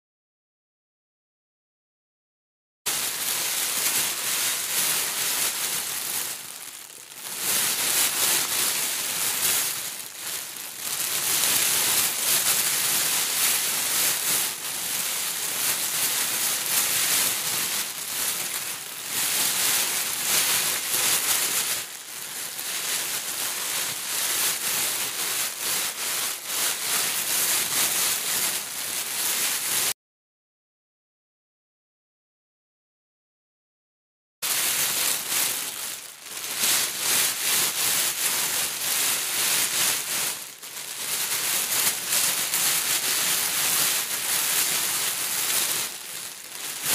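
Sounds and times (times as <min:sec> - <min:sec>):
hands rustling foam beads: 0:45.7 - 0:46.9.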